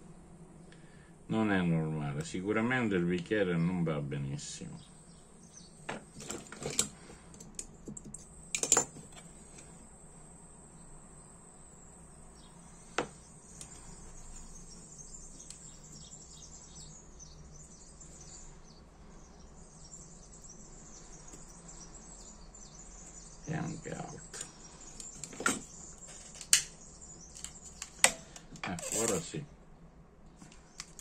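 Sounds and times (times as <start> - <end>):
faint high-pitched hum: 0.0 - 31.0.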